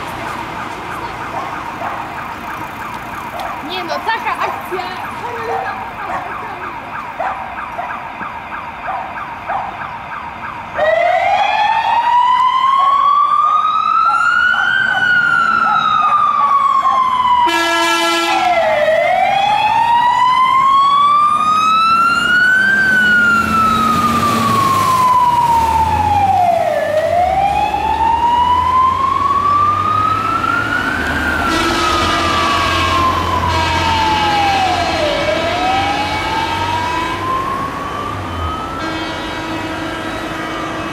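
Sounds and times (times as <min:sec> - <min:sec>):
truck diesel engine rumbling: 0:00.0 - 0:07.9
fire engine siren wailing: 0:00.0 - 0:40.9
short horn blast: 0:17.5 - 0:18.5, 0:31.4 - 0:34.0, 0:38.8 - 0:40.5.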